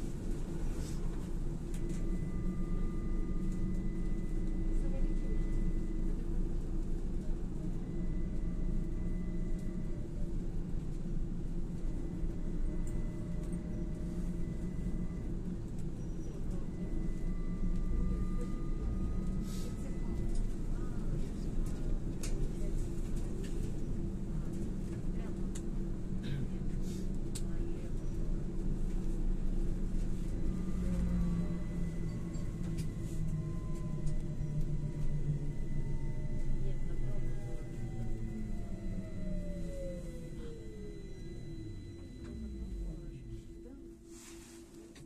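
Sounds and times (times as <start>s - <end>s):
low rumble of trolleybus ride: 0.0s - 45.0s
faint whine rising in pitch: 1.7s - 6.8s, 11.8s - 21.1s, 29.6s - 45.0s
electric drive whine: 30.0s - 45.0s.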